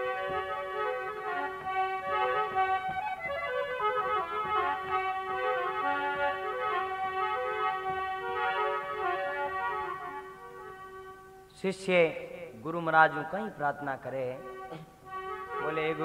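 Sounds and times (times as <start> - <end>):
light percussion: 0.0 - 11.4
reedy organ-like keyboard melody: 0.0 - 11.5, 12.2 - 16.0.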